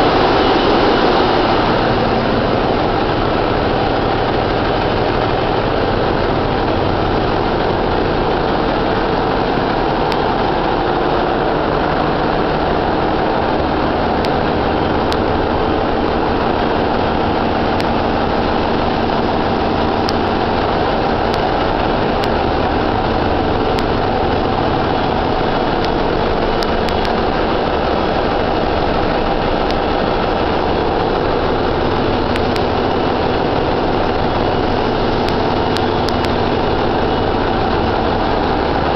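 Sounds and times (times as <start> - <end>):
engine room machinery drone: 0.0 - 38.9.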